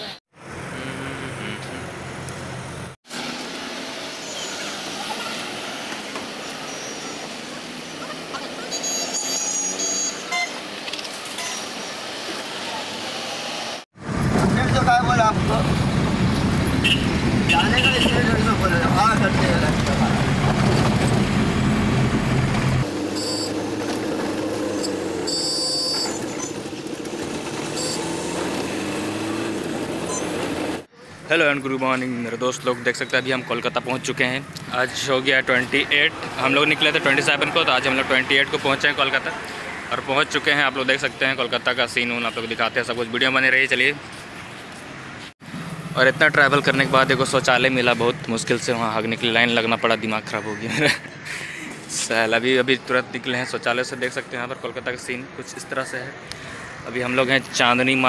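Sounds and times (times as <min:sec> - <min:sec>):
road traffic: 0:00.0 - 0:58.0.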